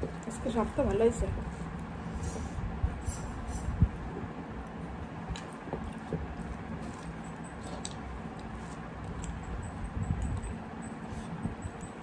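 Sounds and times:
wet chewing: 0:04.6 - 0:12.0.

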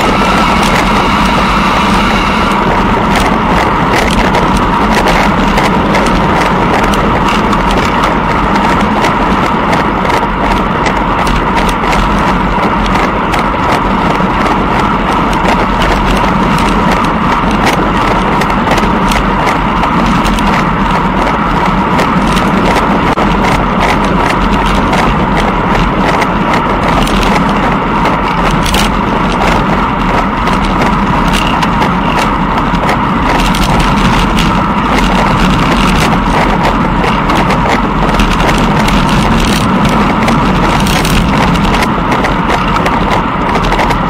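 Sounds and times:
wind rush on microphone: 0:00.0 - 0:44.0.

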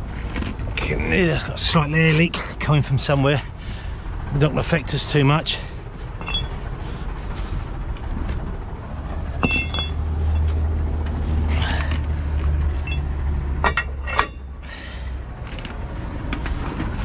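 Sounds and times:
truck diesel engine running: 0:00.0 - 0:17.0
sharp metallic clanks: 0:06.2 - 0:06.6, 0:09.4 - 0:10.6, 0:12.7 - 0:14.6.

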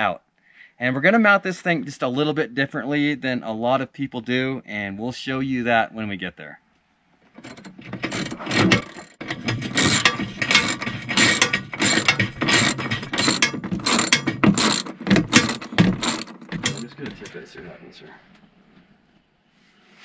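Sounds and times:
ratchet wrench clicking: 0:07.4 - 0:17.2.

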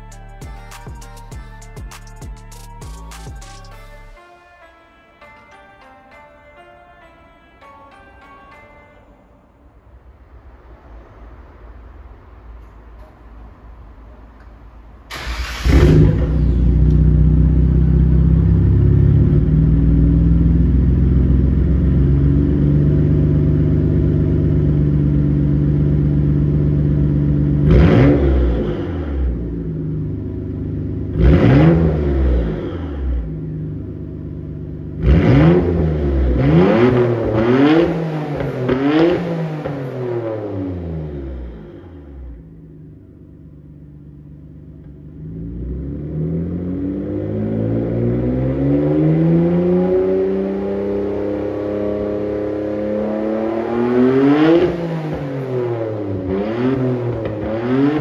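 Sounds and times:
car engine idling and revving: 0:00.0 - 0:04.2, 0:15.1 - 0:58.0.

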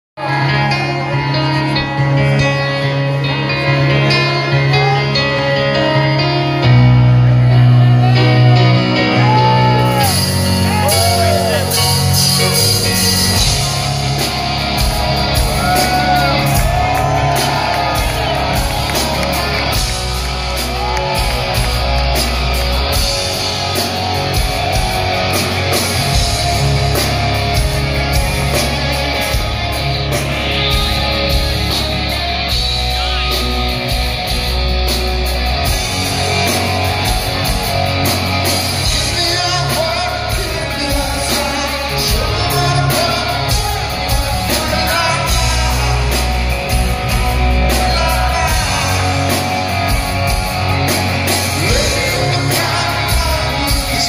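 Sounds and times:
live rock band playing: 0:00.2 - 0:54.0
person singing: 0:35.1 - 0:54.0.

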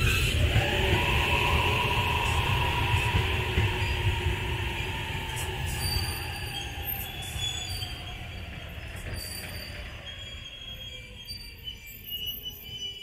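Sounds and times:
train wheels rumbling over rails: 0:00.0 - 0:10.9
faint high wheel squeals: 0:05.4 - 0:13.0.

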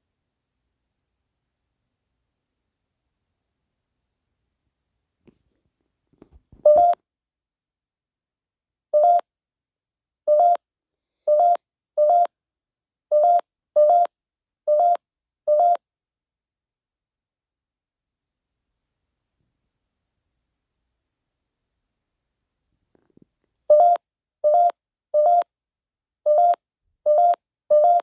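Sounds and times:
short electronic beeps: 0:11.3 - 0:12.3.

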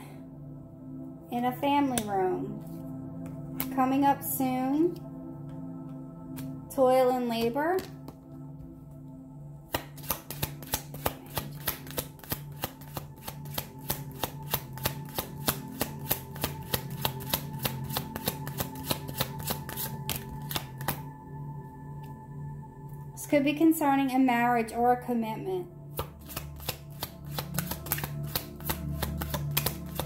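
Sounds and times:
soft ambient music: 0:00.0 - 0:30.0
cards being shuffled: 0:09.7 - 0:21.0, 0:25.9 - 0:30.0.

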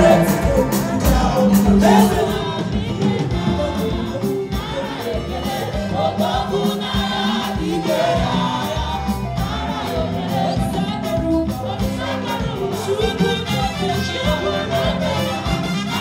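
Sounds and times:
steady beat: 0:00.0 - 0:08.0
gospel choir singing: 0:00.0 - 0:16.0.

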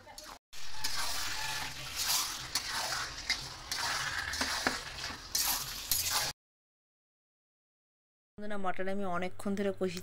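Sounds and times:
spatula scraping pan: 0:00.0 - 0:06.4
meat sizzling: 0:00.2 - 0:06.4.

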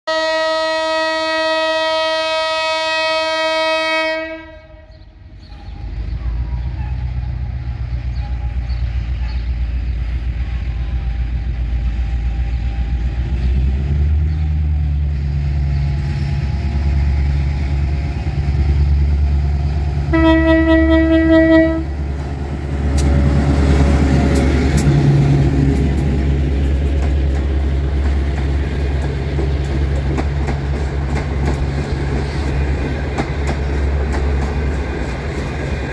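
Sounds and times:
locomotive horn: 0:00.1 - 0:05.8, 0:20.1 - 0:22.0
diesel engine rumble: 0:05.0 - 0:35.9
train wheels clicking over rails: 0:22.0 - 0:35.9.

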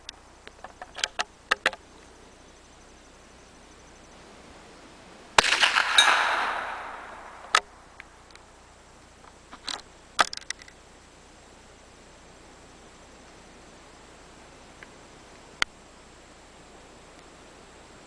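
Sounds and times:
rifle shot: 0:05.4 - 0:07.8.

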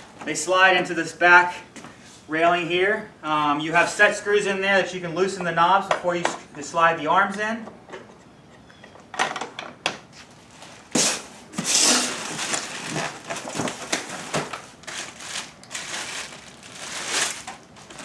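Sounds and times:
foam packing rustling: 0:10.3 - 0:18.0
plastic wrap crinkling: 0:11.7 - 0:18.0.

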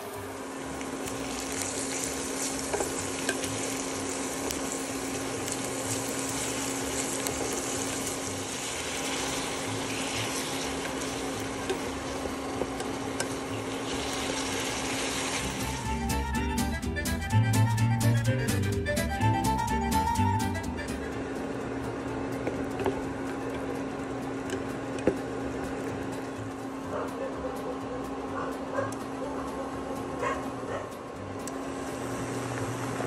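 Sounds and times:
onion and garlic sizzling in oil: 0:00.0 - 0:16.3
steady low hum: 0:20.5 - 0:33.0.

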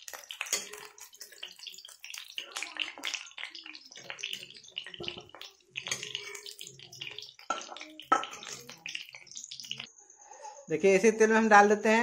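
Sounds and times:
steel spoon scraping pan: 0:00.0 - 0:09.8
vegetables sizzling in hot oil: 0:00.0 - 0:09.9.

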